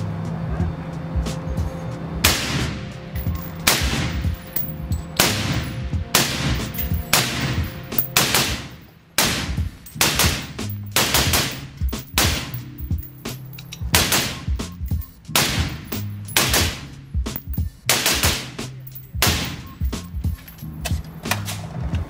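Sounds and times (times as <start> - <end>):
rifle shots ringing: 3.2 - 13.1, 13.9 - 20.0.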